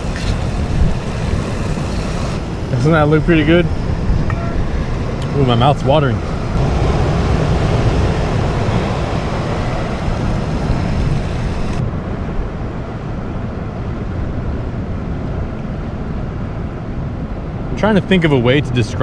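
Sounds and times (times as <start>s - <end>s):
surf breaking over rocks: 0.0s - 11.8s
wind rumbling on microphone: 0.0s - 19.0s.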